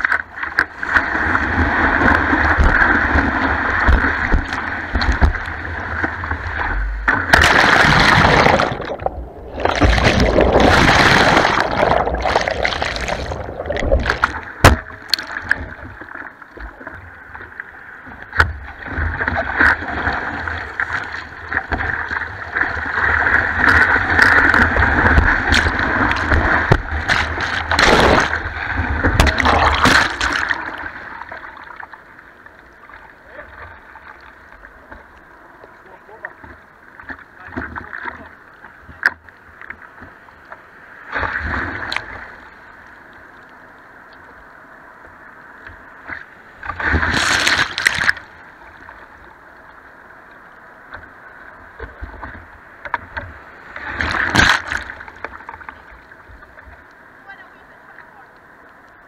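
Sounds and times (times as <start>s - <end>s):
ocean whitewater rushing: 0.4s - 16.1s, 18.4s - 31.8s.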